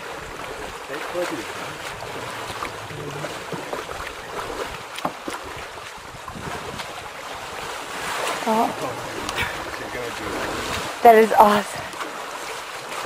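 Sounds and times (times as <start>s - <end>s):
small knocks and splashes: 0.0s - 13.0s
water lapping around canoe: 0.0s - 13.0s
wind on microphone: 1.5s - 11.0s.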